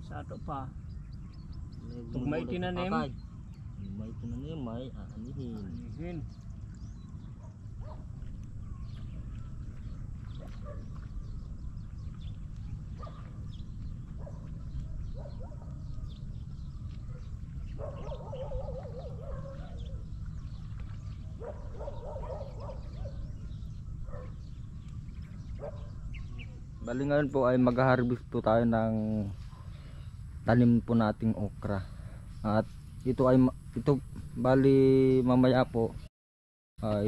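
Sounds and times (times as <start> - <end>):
low rumble: 5.0 - 34.5.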